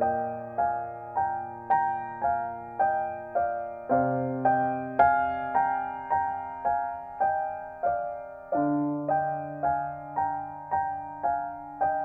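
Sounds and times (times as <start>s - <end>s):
gentle piano piece: 0.0s - 12.0s.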